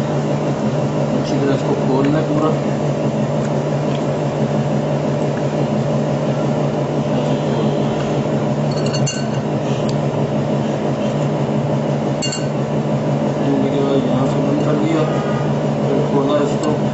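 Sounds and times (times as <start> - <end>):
low machine hum: 0.0 - 16.9
spoon clinking against glass: 8.7 - 9.4, 12.2 - 12.6.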